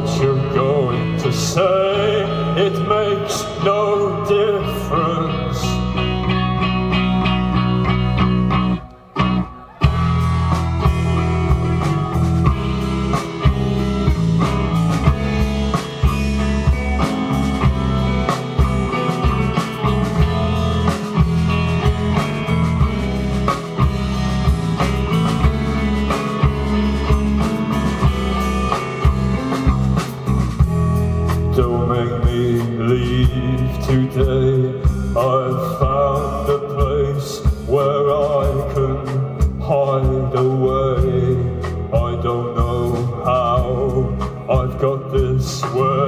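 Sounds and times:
rock band playing: 0.0s - 46.0s
drum hits: 9.8s - 31.7s.

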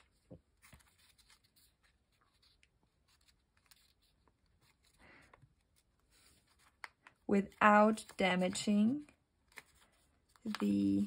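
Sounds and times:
paper handling ticks: 0.0s - 8.8s
paper envelope rustling: 0.0s - 11.0s.

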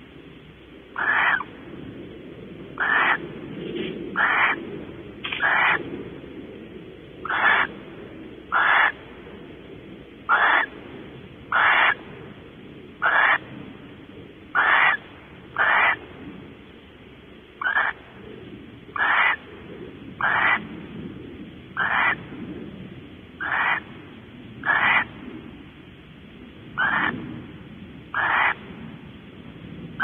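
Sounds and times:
owl harsh hissy calls: 1.0s - 1.5s, 2.8s - 3.2s, 4.1s - 4.6s, 5.3s - 5.8s, 7.2s - 7.7s, 8.5s - 9.0s, 10.3s - 10.8s, 11.5s - 12.0s, 13.0s - 13.4s, 14.5s - 16.0s, 17.6s - 18.0s, 18.9s - 19.4s, 20.2s - 20.6s, 21.8s - 22.2s, 23.4s - 23.9s, 24.6s - 25.1s, 26.8s - 27.2s, 28.1s - 28.6s.

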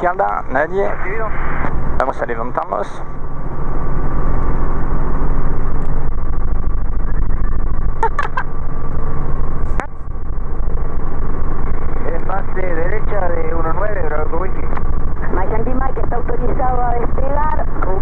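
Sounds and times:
helicopter engine and rotor drone: 0.0s - 18.0s.

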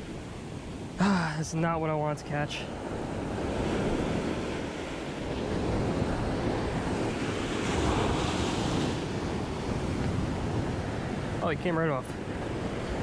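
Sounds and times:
ocean surf washing up beach: 0.0s - 13.0s
wind buffeting microphone: 2.7s - 13.0s.

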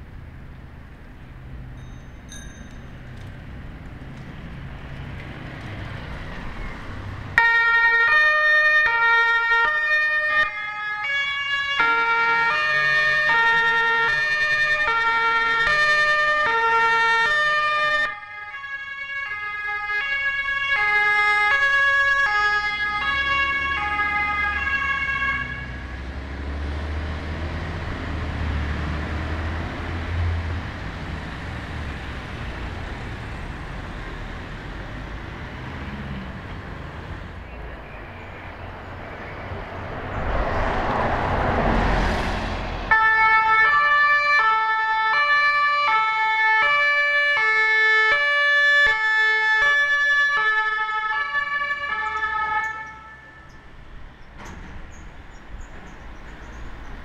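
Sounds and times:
bus engine rumbling: 0.0s - 7.5s, 19.3s - 43.9s, 50.1s - 57.0s
two-tone siren: 7.4s - 26.0s, 42.9s - 53.7s.

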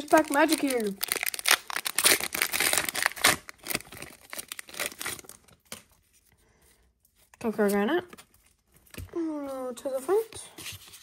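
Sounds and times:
foil wrapper tearing and crinkling: 0.0s - 5.9s.

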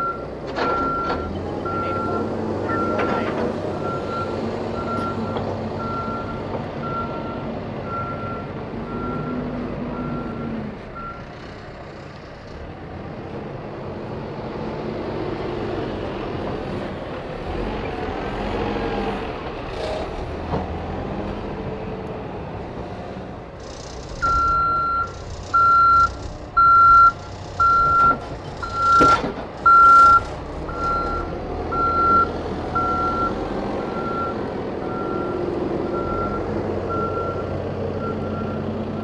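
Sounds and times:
diesel engine running: 0.0s - 39.0s
reversing alarm beeping: 3.8s - 11.2s, 24.2s - 39.0s.

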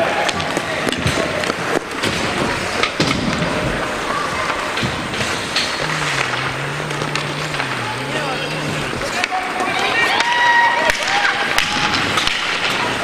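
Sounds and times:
sports hall din: 0.0s - 13.0s
low droning tone: 5.5s - 9.2s.

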